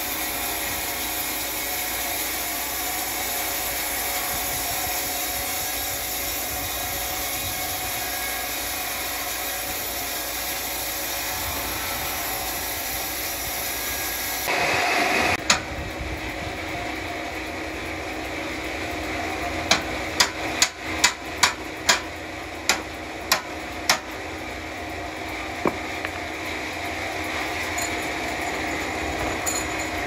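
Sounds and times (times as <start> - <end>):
machinery drone: 0.0 - 30.0
sharp knocks: 25.6 - 26.2.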